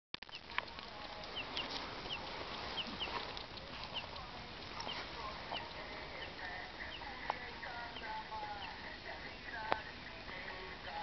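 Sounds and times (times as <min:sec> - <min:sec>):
wood fire crackling and popping: 0:00.2 - 0:07.6
bird chirping: 0:00.2 - 0:11.0.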